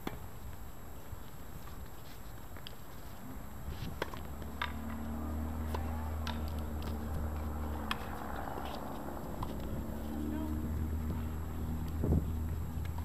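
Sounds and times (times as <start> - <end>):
tennis balls struck by racquets: 3.8 - 13.0.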